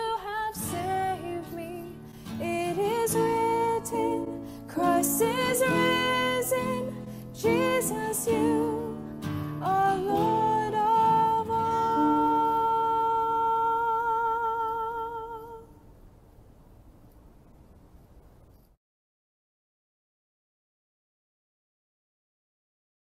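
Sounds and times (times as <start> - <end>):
acoustic guitar and band: 0.0 - 15.7
woman singing worship song: 0.0 - 15.8
faint hiss: 0.0 - 18.8.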